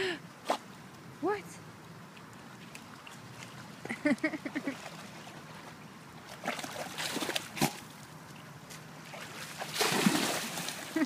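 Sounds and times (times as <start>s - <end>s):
dog splashing in water: 4.6s - 7.8s, 9.0s - 11.0s.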